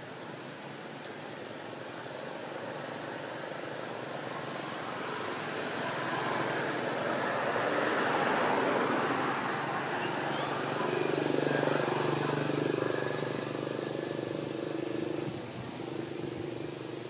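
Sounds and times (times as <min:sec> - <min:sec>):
motor vehicle passing by: 0:03.9 - 0:17.0.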